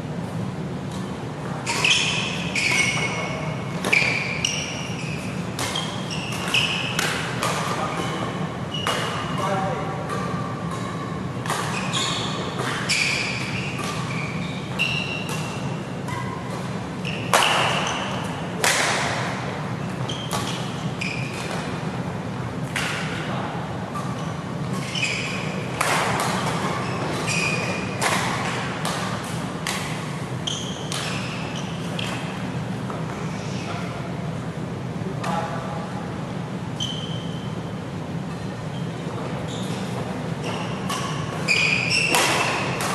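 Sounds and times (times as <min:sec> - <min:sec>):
shoes squeaking on court: 0:00.9 - 0:22.0, 0:24.0 - 0:33.2, 0:36.8 - 0:42.9
rackets striking shuttlecock: 0:05.1 - 0:08.2, 0:08.8 - 0:21.8, 0:22.6 - 0:23.2, 0:25.4 - 0:33.1, 0:40.6 - 0:42.9.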